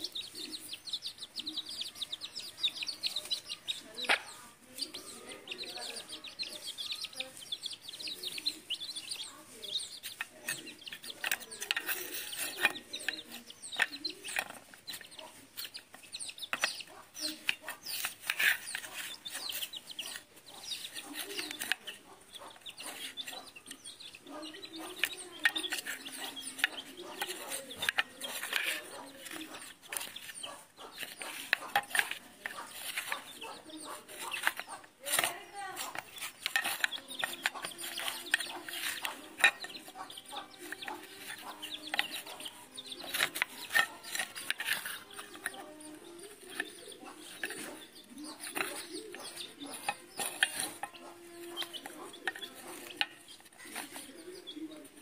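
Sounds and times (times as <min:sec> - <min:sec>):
beaks pecking on tiled floor: 0:00.0 - 0:55.0
chicks peeping: 0:00.0 - 0:55.0
hens clucking: 0:00.0 - 0:55.0.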